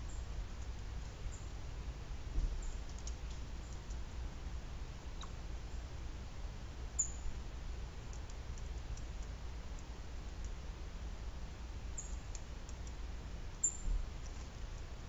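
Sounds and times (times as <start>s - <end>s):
woodpecker pecking clicks: 2.8s - 4.0s, 12.3s - 13.0s.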